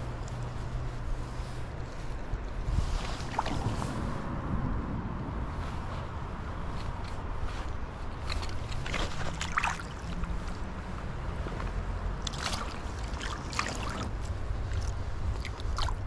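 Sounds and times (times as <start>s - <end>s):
wind buffeting microphone: 0.0s - 16.0s
water splashes: 2.7s - 4.2s, 8.3s - 16.0s
river water rushing: 3.0s - 4.4s, 8.2s - 16.0s.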